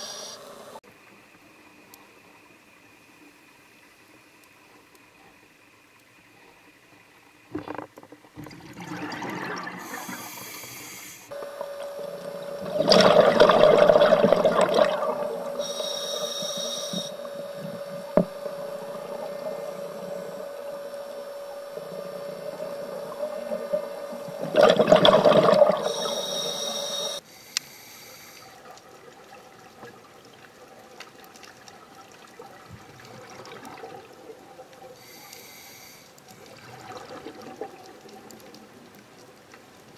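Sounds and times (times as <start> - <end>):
steady hum: 7.5 - 28.8
exhaled bubbles rushing: 8.4 - 10.3, 11.7 - 15.6, 21.8 - 26.1, 32.0 - 34.6, 36.4 - 38.4
hissing regulator inhalations: 9.7 - 11.4, 14.8 - 24.5, 25.2 - 28.6, 35.0 - 36.3.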